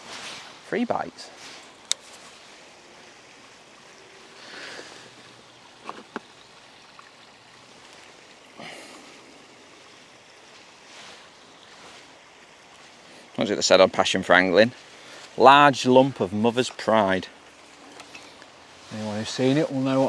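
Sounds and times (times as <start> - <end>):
soft rustles of handling tackle: 0.0 - 3.2, 9.8 - 13.3, 17.5 - 20.0
riverbank ambience: 0.0 - 20.0.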